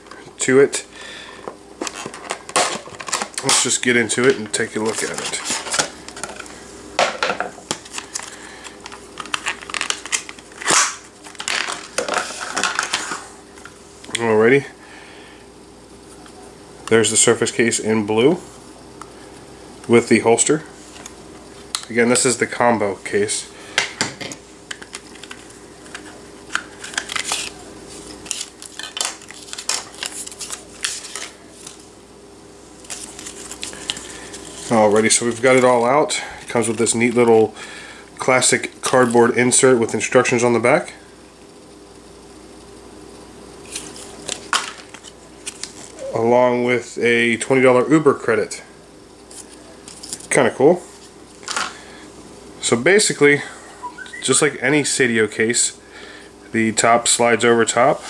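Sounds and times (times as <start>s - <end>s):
plastic packaging crinkling: 1.8s - 6.6s, 7.6s - 13.3s, 24.7s - 31.9s, 32.8s - 35.7s
plastic rustle: 24.8s - 31.9s, 32.8s - 35.6s.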